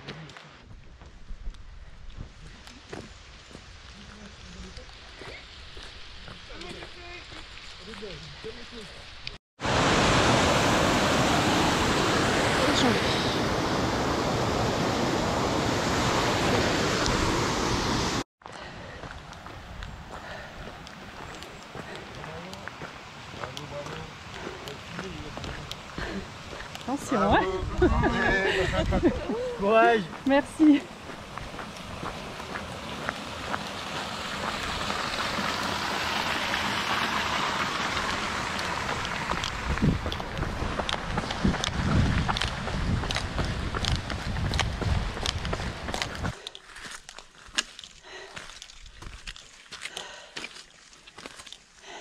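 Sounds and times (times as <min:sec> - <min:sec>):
footsteps on gravel: 0:00.0 - 0:08.3, 0:18.4 - 0:27.8, 0:29.8 - 0:36.2, 0:38.0 - 0:51.7
stream rushing over rocks: 0:09.6 - 0:18.2, 0:19.0 - 0:46.3.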